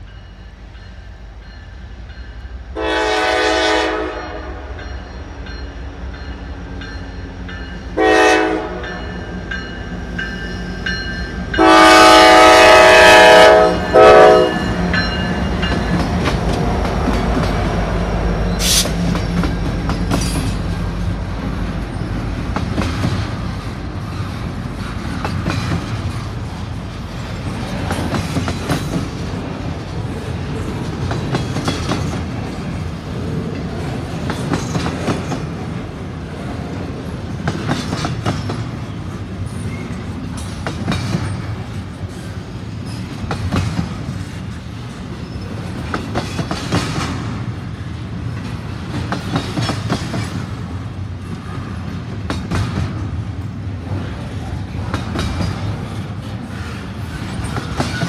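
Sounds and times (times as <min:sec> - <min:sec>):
freight cars rumbling on rails: 0:00.0 - 0:58.0
locomotive horn blasts: 0:02.8 - 0:04.8, 0:08.0 - 0:09.0, 0:11.6 - 0:14.8.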